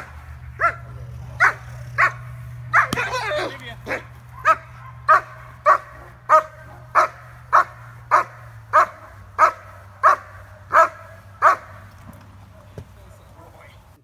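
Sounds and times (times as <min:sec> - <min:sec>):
dog barking loudly: 0:00.0 - 0:11.9.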